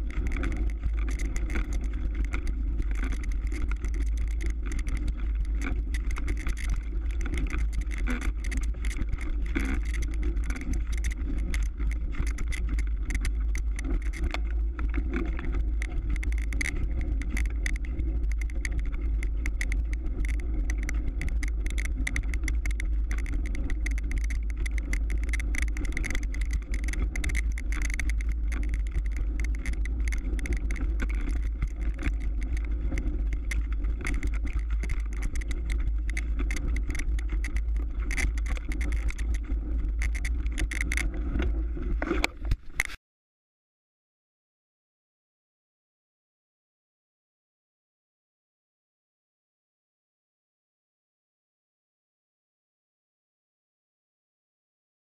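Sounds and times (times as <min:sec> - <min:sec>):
bike tyres rumbling over snow: 0:00.0 - 0:43.0
small rattles and clicks: 0:00.0 - 0:43.0.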